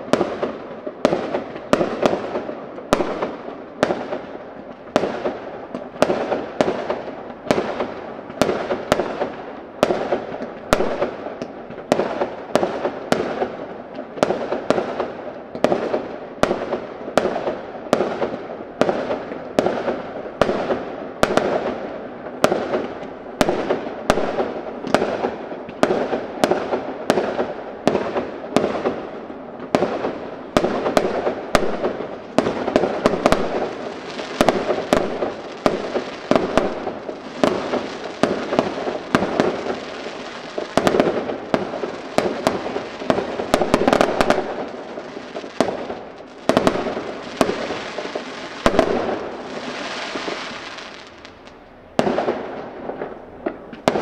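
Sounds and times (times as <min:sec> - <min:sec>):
fireworks crackling: 0:00.0 - 0:54.0
firework shells bursting: 0:30.6 - 0:52.4.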